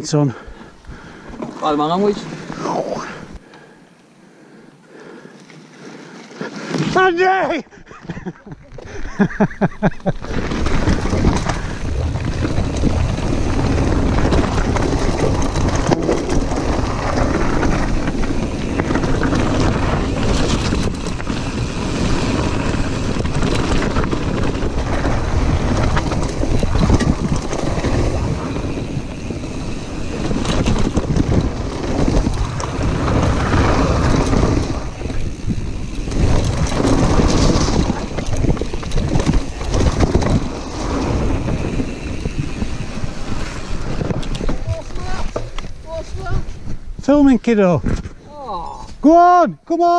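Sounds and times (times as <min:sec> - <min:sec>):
bike rattling: 0:00.1 - 0:49.9
tyre noise on gravel: 0:10.0 - 0:49.2
wind buffeting microphone: 0:10.1 - 0:49.0.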